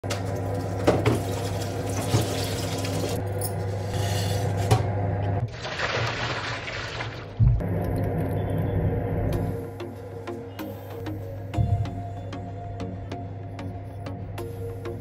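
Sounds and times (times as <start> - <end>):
water pouring onto ice cubes: 5.5 - 7.4.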